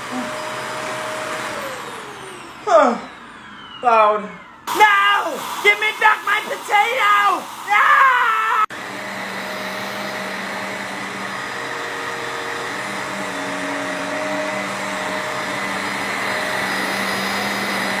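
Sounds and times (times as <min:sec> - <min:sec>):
vacuum cleaner running over carpet: 0:00.0 - 0:18.0
man yelling: 0:04.7 - 0:08.7.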